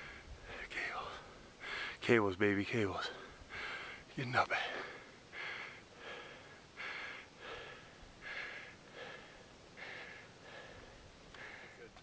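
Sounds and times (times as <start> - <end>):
person panting: 3.5 - 4.0, 4.7 - 11.9.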